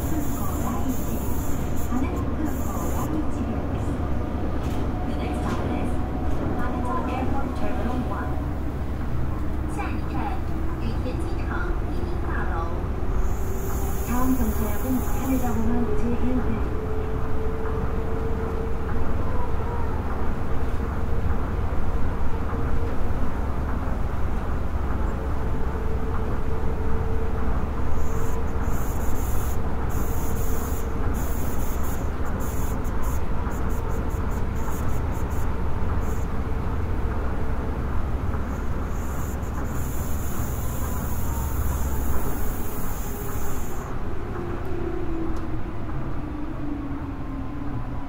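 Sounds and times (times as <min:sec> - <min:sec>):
high hiss: 0:00.0 - 0:03.1, 0:13.2 - 0:15.7, 0:28.0 - 0:36.3, 0:38.4 - 0:43.9
monorail car rumbling: 0:00.0 - 0:48.0.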